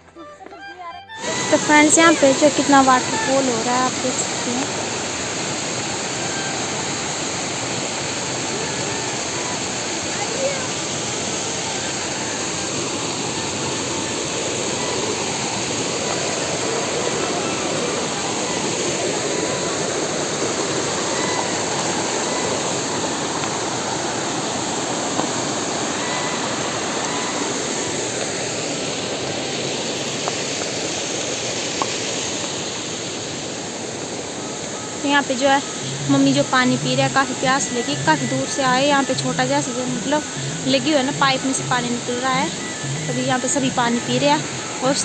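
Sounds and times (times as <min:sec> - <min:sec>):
waterfall rushing over boulders: 0:01.2 - 0:45.0.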